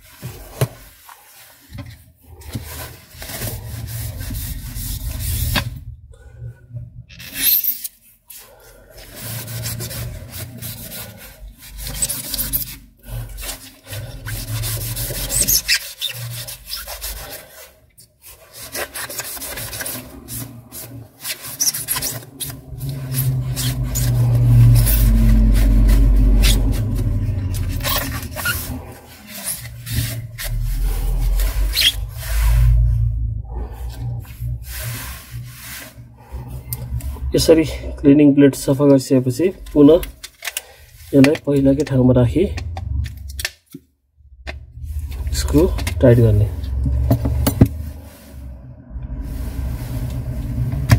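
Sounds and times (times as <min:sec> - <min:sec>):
tissue rubbing metal blade: 0:09.1 - 0:33.0.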